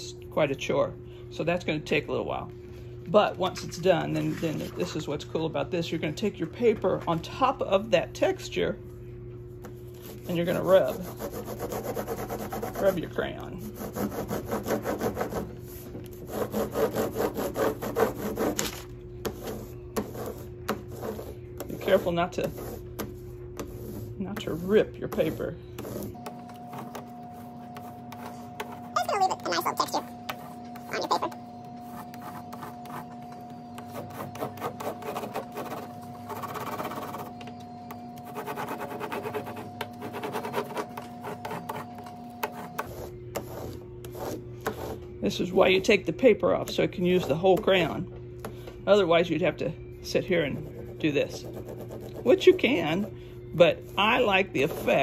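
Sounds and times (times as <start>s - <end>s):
crayon scratching on paper: 10.0s - 33.2s, 33.8s - 37.3s, 38.2s - 45.0s, 50.4s - 53.1s, 53.8s - 55.0s.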